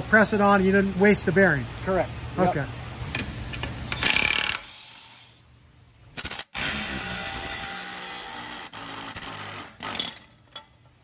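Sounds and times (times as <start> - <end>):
power wrench running: 3.9 - 5.1, 6.2 - 10.3.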